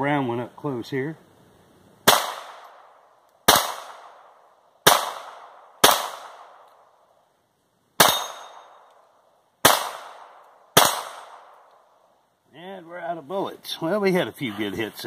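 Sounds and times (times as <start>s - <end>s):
pistol shots: 2.0s - 6.8s, 8.0s - 8.9s, 9.6s - 11.7s.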